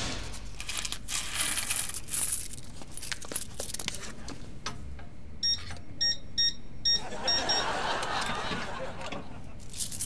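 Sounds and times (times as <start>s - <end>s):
coins rustling and clicking: 0.5s - 4.2s, 9.6s - 10.0s.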